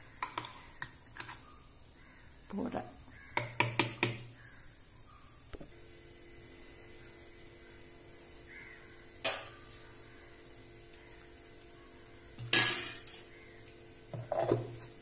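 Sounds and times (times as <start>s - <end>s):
faint steady hum: 0.0s - 15.0s
crow cawing: 2.0s - 2.3s, 3.1s - 3.5s, 4.4s - 4.7s, 8.5s - 10.4s, 13.3s - 13.6s.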